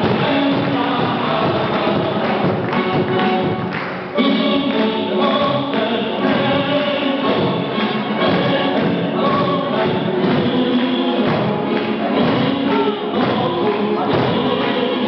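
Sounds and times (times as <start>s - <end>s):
crowd clapping along: 0.0s - 15.0s
music with many voices singing: 0.0s - 15.0s.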